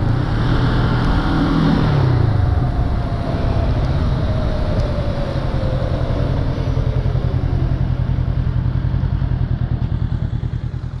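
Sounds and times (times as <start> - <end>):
motorcycle engine running: 3.6 - 11.0.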